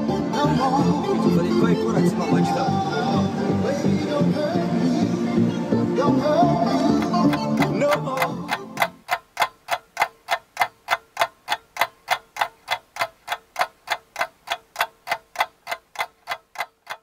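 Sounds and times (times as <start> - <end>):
clock ticking: 6.8 - 17.0.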